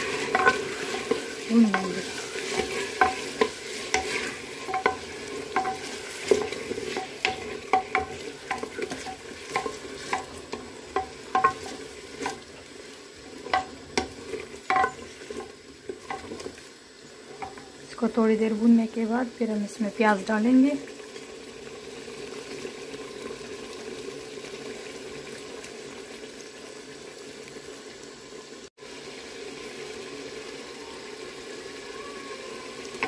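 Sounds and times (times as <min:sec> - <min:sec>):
chicken sizzling in oil: 0:00.0 - 0:33.0
wooden spoon knocking clay pot: 0:01.7 - 0:12.4, 0:13.5 - 0:16.4.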